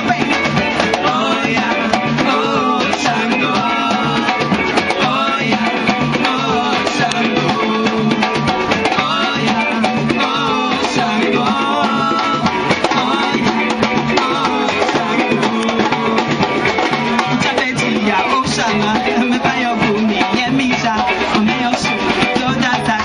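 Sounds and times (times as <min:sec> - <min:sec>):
bass drum beat: 0:00.0 - 0:23.0
samba band playing: 0:00.0 - 0:23.0.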